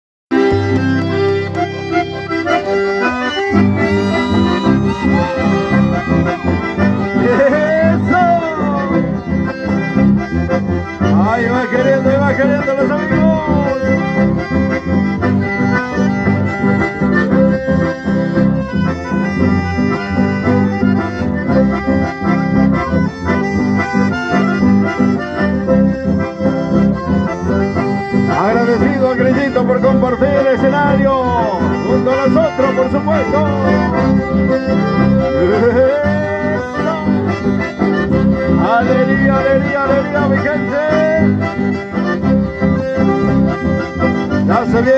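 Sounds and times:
accordions playing lively tune: 0:00.3 - 0:44.9
electric bass: 0:00.3 - 0:44.9.

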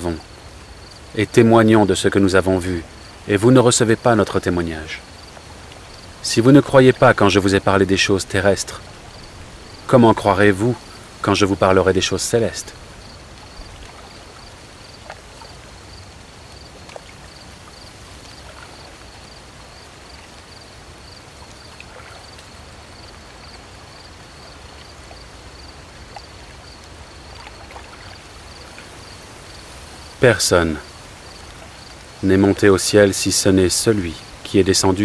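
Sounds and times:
crickets chirping: 0:00.0 - 0:35.0
low steady night hiss: 0:00.0 - 0:35.0
faint ticks: 0:13.0 - 0:29.2.

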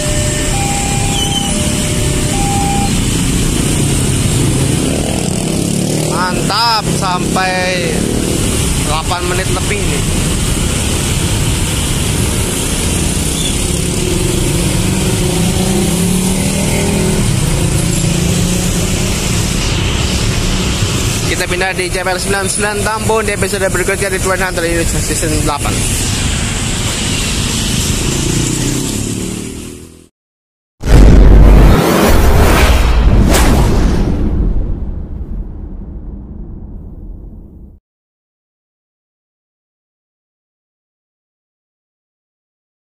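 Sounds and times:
scooters and motorcycles passing: 0:00.5 - 0:08.7, 0:11.5 - 0:19.1, 0:27.1 - 0:30.1
deep booming rumble: 0:30.8 - 0:37.8
quick whoosh: 0:31.5 - 0:34.4.

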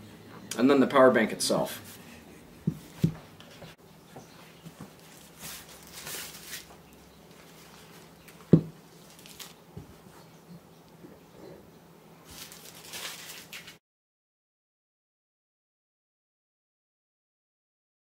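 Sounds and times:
plastic crinkling: 0:04.7 - 0:09.6, 0:12.2 - 0:13.8.

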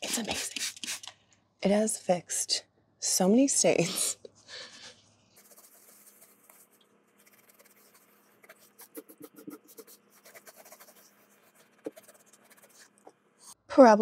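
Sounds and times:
towel scrubbing a wall: 0:05.4 - 0:13.0.

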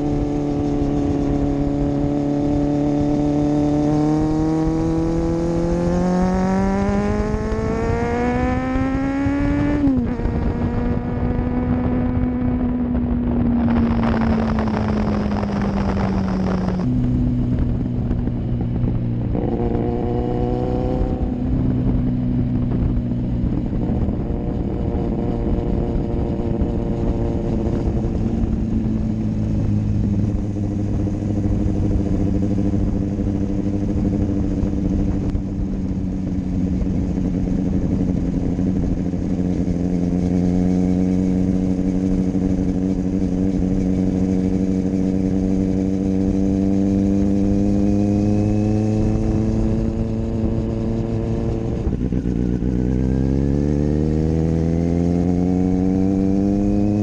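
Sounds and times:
motorcycle engine revving: 0:00.0 - 0:57.0
rush of noise: 0:07.2 - 0:22.0.

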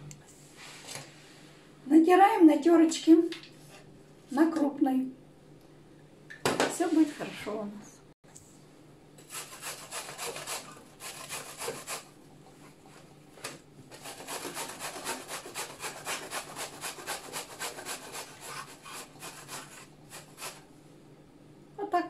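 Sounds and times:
zucchini grated on metal grater: 0:09.2 - 0:12.1, 0:13.9 - 0:20.6.

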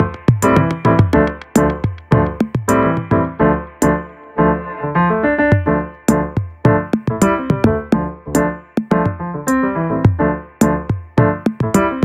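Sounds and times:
steady beat: 0:00.0 - 0:04.0, 0:06.1 - 0:09.2, 0:10.2 - 0:12.0
keyboard chords: 0:00.0 - 0:12.0.

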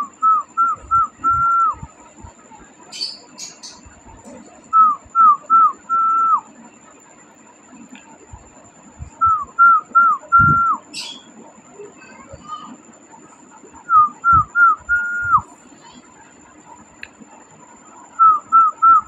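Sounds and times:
person whistling: 0:00.2 - 0:01.8, 0:13.9 - 0:15.4.

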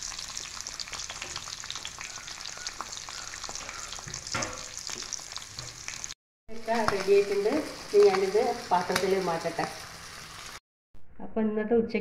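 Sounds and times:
fish sizzling in oil: 0:00.0 - 0:10.6.

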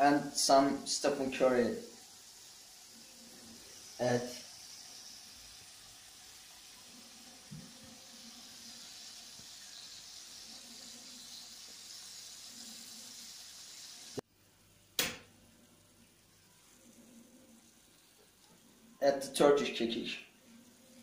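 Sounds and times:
chicken sizzling in a pan: 0:00.0 - 0:14.2, 0:15.1 - 0:21.0
sharp loud click: 0:15.0 - 0:15.3.

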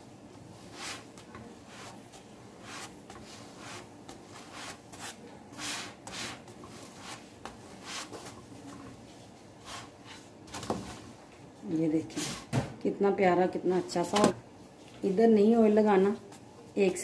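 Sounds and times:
wooden spatula scraping flatbread: 0:00.5 - 0:10.3.

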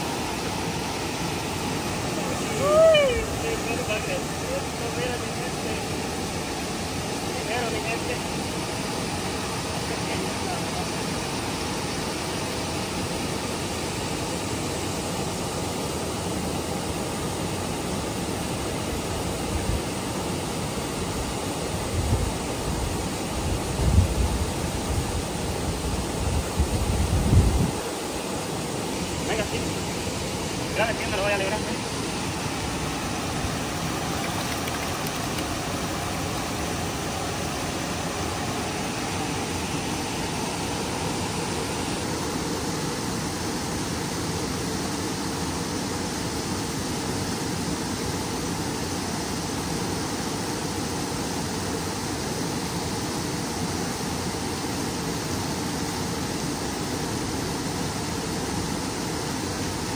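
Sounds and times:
water rushing below a dam: 0:00.0 - 0:59.9
wind gusts on microphone: 0:21.8 - 0:28.3.

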